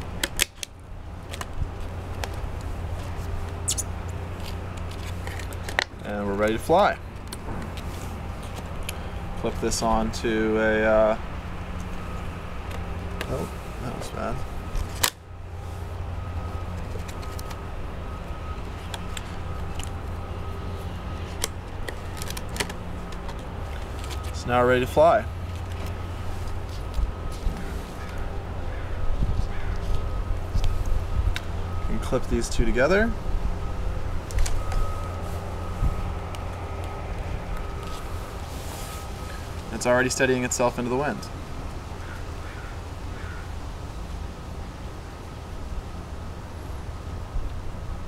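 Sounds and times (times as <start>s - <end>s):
plastic clicks and crinkles: 0.2s - 9.0s, 16.5s - 17.6s, 18.4s - 20.2s, 21.2s - 28.2s.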